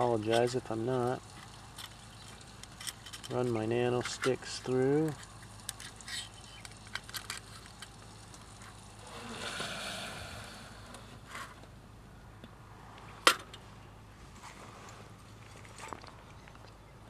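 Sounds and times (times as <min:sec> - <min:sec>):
soft scraping rush: 0:09.0 - 0:11.6.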